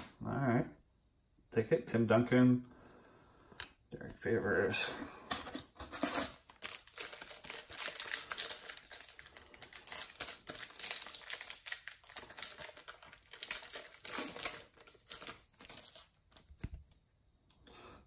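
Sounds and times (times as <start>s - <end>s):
foil wrapper crinkling and tearing: 5.9s - 16.8s.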